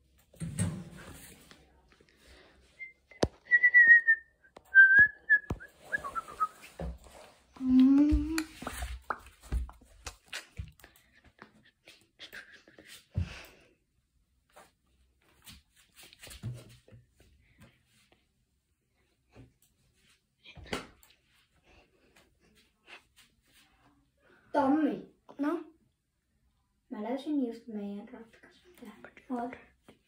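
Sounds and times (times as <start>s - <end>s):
person whistling: 2.8s - 6.6s.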